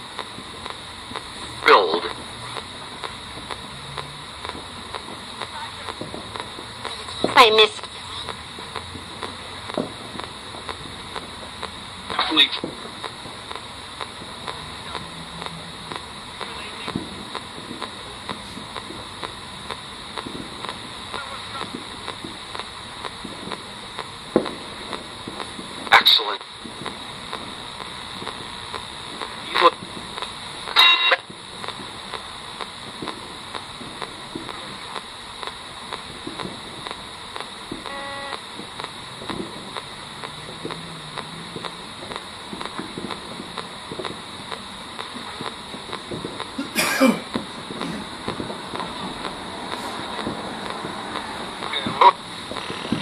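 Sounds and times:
radio static hiss: 0.0 - 53.0
sharp radio clicks: 0.0 - 53.0
brief radio station tone: 37.8 - 38.4.

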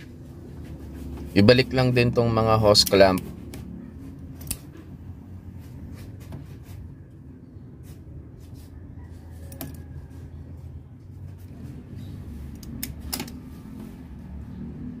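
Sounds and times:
pliers clicking on hose clamp: 4.4 - 4.6.

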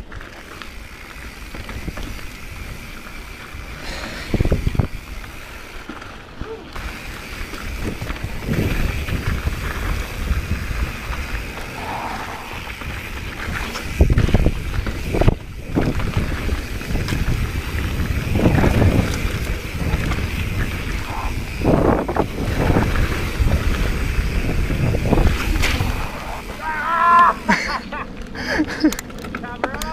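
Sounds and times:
bike rattling: 0.0 - 29.9
tyres rumbling over dirt and stones: 0.0 - 29.9
wind buffeting microphone: 0.8 - 5.4, 6.8 - 26.6.

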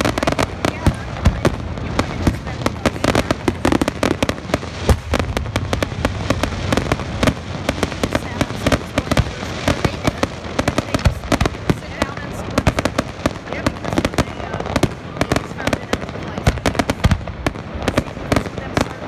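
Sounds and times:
fireworks bursting: 0.0 - 19.0.

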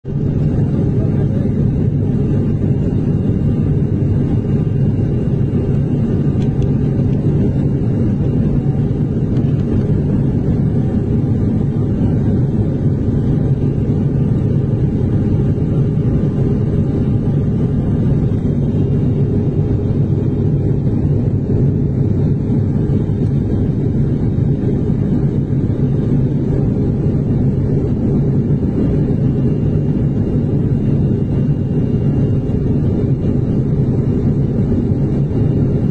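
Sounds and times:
airliner cabin engine rumble: 0.0 - 35.9.

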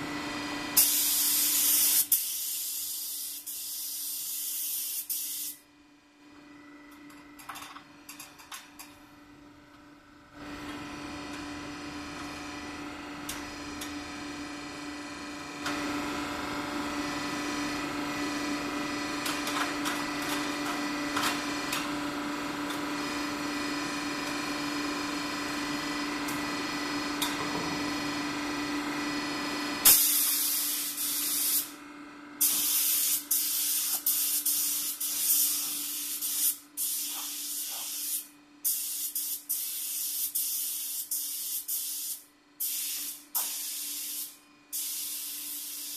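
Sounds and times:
mechanical hum: 0.0 - 45.9
spray gun hissing bursts: 0.8 - 5.6, 29.9 - 31.7, 32.4 - 45.9.

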